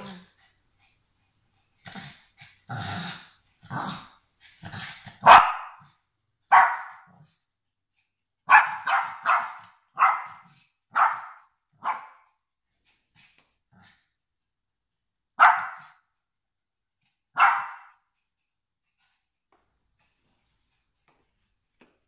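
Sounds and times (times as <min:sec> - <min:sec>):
dogs growling: 0:01.8 - 0:05.2.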